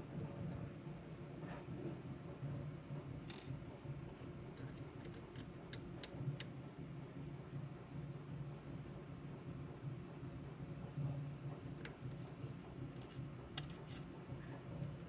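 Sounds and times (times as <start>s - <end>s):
faint steady hum: 0.0s - 15.0s
hex key clicking on screws: 4.6s - 6.2s, 12.9s - 14.1s
hex key scraping: 12.9s - 14.1s.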